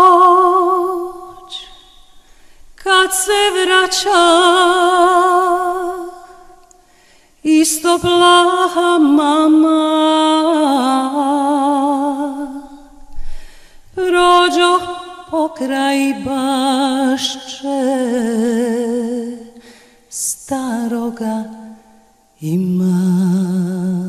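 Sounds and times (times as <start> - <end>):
solo voice singing: 0.0 - 2.2, 2.8 - 6.6, 7.4 - 13.0, 13.9 - 24.0.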